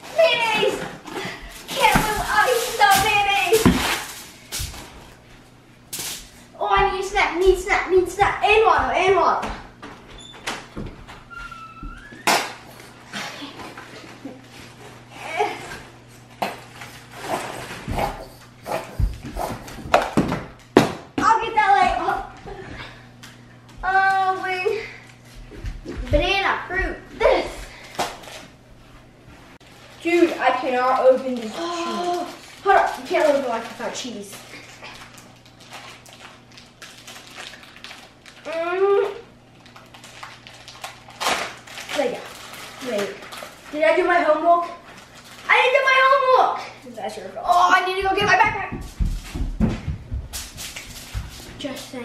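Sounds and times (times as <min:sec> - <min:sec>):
plastic bag rustling: 0:00.0 - 0:05.4, 0:29.6 - 0:46.3
plastic packaging crinkling: 0:01.5 - 0:05.2, 0:29.6 - 0:44.1, 0:44.8 - 0:46.0.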